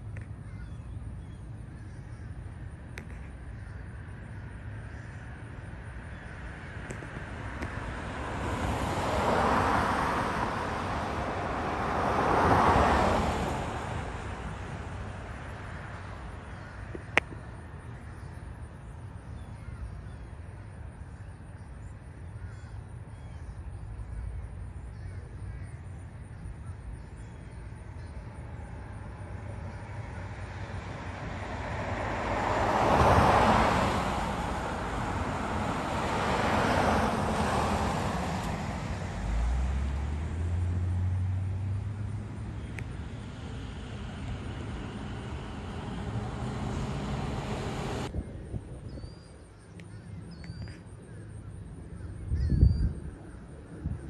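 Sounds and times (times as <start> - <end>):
cars passing by: 0.0 - 54.0
distant jetliner roar: 27.6 - 48.1.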